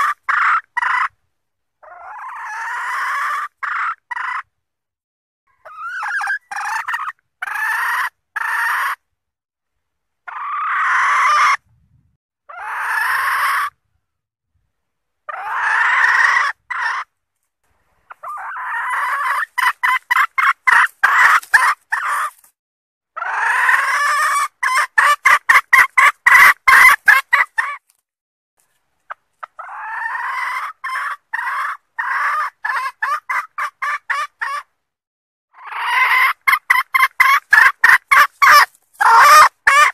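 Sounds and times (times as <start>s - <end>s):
hen cackling: 0.0s - 1.2s, 1.8s - 4.5s, 5.5s - 9.0s, 10.3s - 11.6s, 12.5s - 13.8s, 15.3s - 17.1s, 18.1s - 22.4s, 23.2s - 27.8s, 29.4s - 34.7s, 35.5s - 39.9s.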